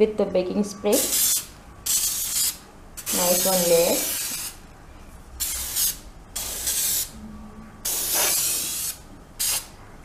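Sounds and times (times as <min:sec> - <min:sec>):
aerosol spray hissing: 0:05.4 - 0:07.1, 0:07.9 - 0:09.7.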